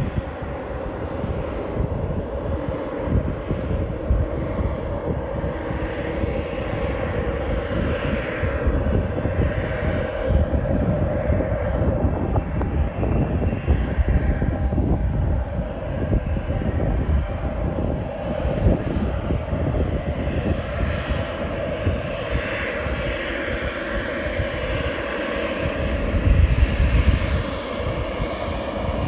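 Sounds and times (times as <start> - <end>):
aircraft engines rumbling: 0.0 - 29.0.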